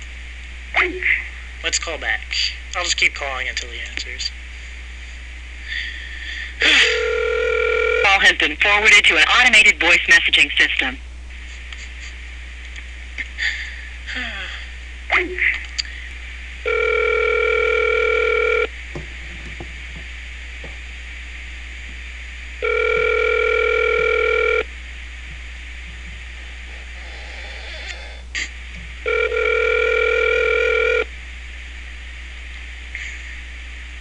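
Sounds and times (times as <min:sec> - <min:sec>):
telephone ringback tone: 0:06.8 - 0:08.2, 0:16.6 - 0:18.7, 0:22.6 - 0:24.7, 0:29.0 - 0:31.1.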